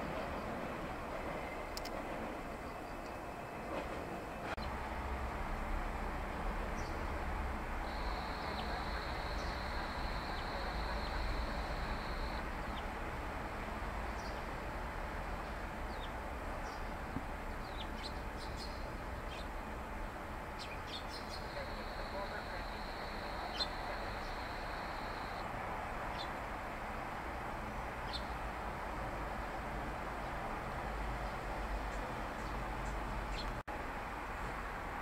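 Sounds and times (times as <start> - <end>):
steady high tone: 7.8 - 12.4, 21.4 - 25.4
sparrows chirping: 7.9 - 12.9, 14.1 - 14.4, 17.6 - 19.5, 20.6 - 25.4, 26.1 - 26.3, 28.0 - 28.4.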